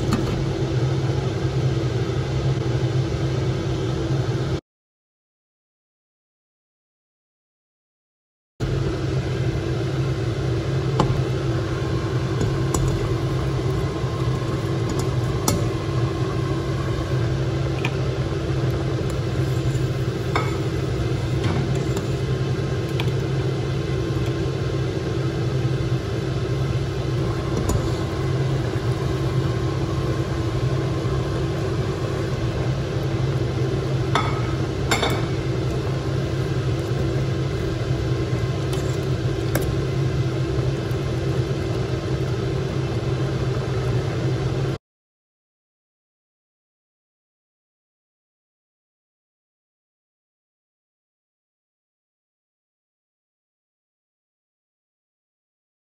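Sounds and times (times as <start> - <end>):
pot of porridge boiling: 8.6 - 44.8.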